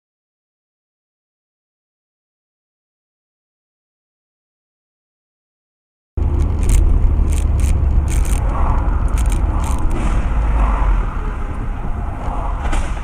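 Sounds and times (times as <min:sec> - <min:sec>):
car engine and road noise: 0:06.2 - 0:13.0.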